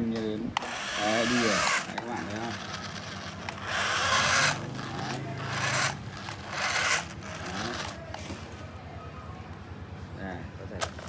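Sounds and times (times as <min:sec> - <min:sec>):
toy motors whirring: 0:00.6 - 0:08.6
wheels scraping on turf: 0:00.6 - 0:08.6.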